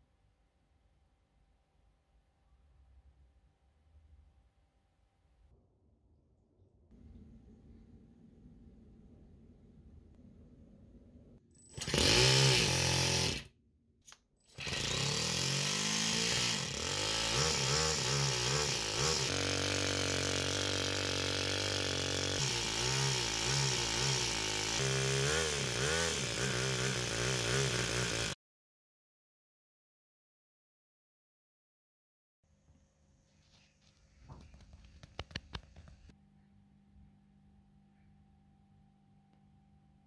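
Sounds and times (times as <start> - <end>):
model engine revving: 11.8 - 13.5, 14.6 - 28.4.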